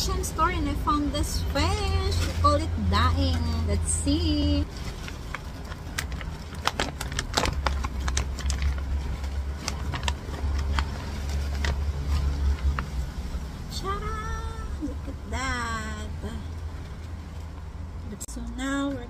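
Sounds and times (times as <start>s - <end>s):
plastic bag crinkling: 4.3s - 13.0s.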